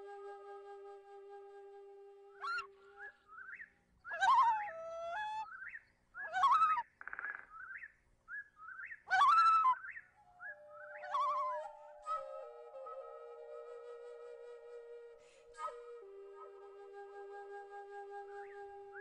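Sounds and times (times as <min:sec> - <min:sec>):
birds chirping and warbling: 0:02.4 - 0:12.1
bird trill: 0:05.4 - 0:13.1
flute-like held note: 0:11.0 - 0:19.0.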